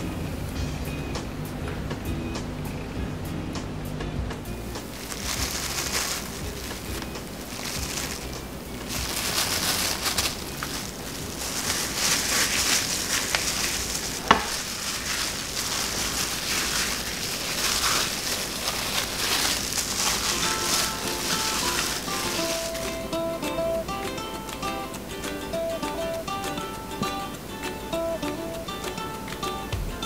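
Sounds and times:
plastic glove crinkling: 4.7s - 23.8s
wet smearing on meat: 4.8s - 22.9s.

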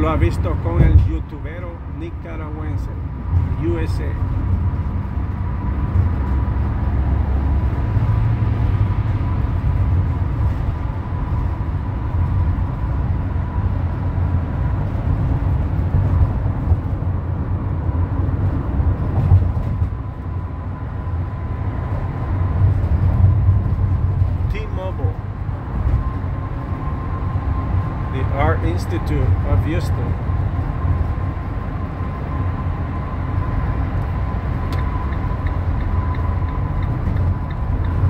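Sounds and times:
car road noise rumble: 0.0s - 38.0s.

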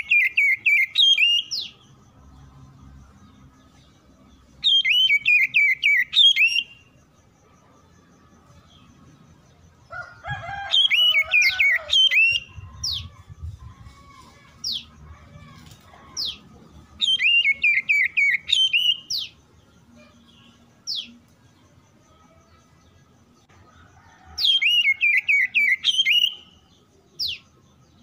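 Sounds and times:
bird singing whistled phrases: 0.0s - 1.7s, 4.6s - 6.8s, 10.8s - 13.2s, 17.0s - 19.4s, 24.5s - 26.6s.

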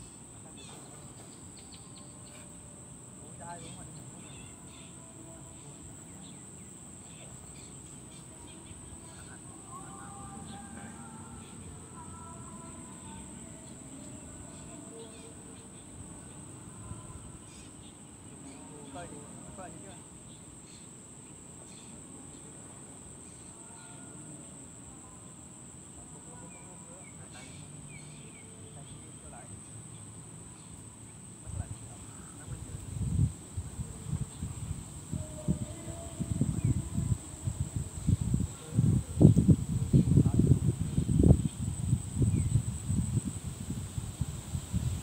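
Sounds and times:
high-pitched insect drone: 0.0s - 45.0s
faint bird chirps: 3.4s - 22.6s.

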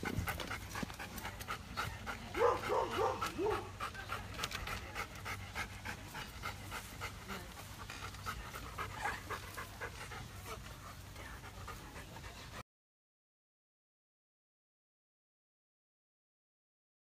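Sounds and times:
dog panting: 0.0s - 12.6s.

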